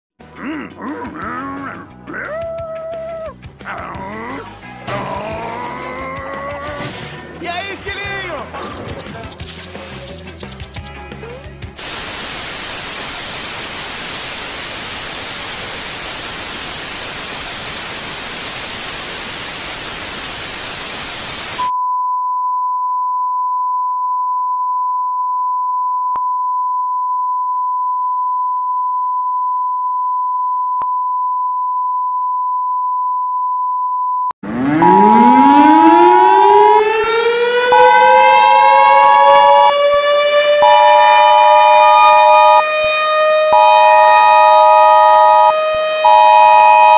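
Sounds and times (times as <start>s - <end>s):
tv static hiss: 11.8s - 21.7s
siren wailing: 34.4s - 46.9s.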